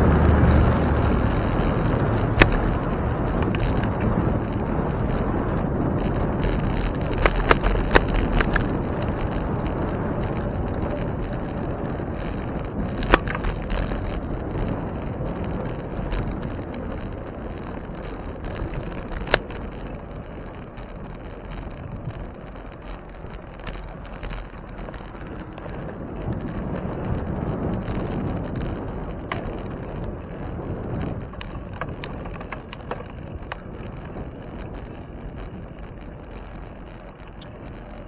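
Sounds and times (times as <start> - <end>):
bicycle road noise: 0.0 - 38.0
wind rushing over microphone: 0.0 - 38.0
sharp clicks: 0.4 - 5.2, 6.0 - 27.2.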